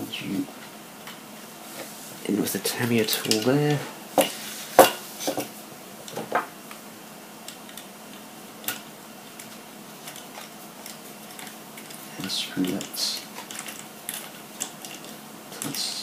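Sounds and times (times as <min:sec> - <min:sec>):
small plastic parts clicking: 0:12.6 - 0:15.9.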